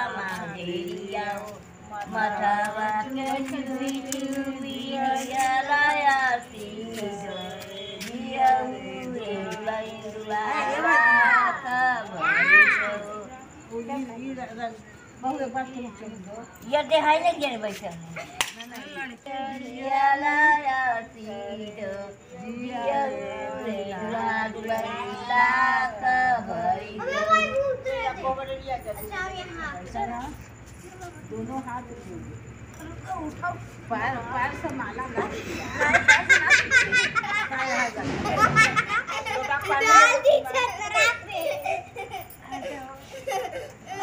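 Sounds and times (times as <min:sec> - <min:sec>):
women singing long held notes: 0:00.0 - 0:14.8, 0:18.8 - 0:27.1.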